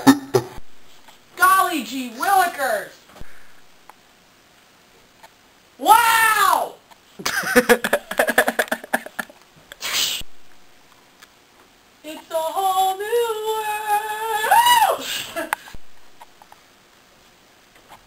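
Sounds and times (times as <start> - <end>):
short hiss: 9.7 - 10.3.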